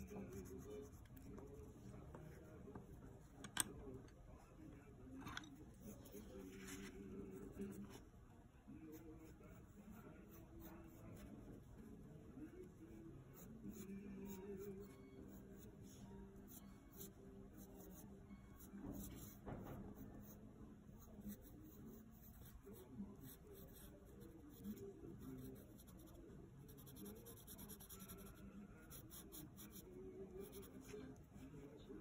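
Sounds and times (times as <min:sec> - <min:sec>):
pencil scratching on paper: 0:00.0 - 0:01.8, 0:18.6 - 0:19.4, 0:20.0 - 0:31.1.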